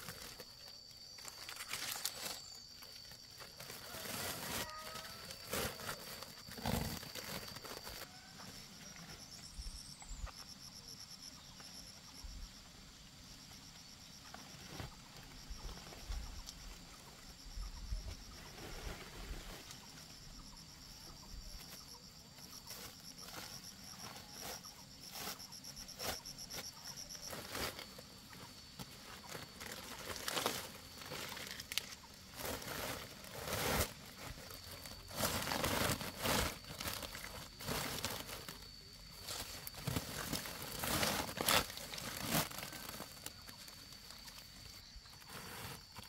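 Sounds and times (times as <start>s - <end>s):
pineapples rustling and knocking: 0.0s - 8.3s, 22.7s - 46.0s
insects chirping: 0.0s - 46.0s.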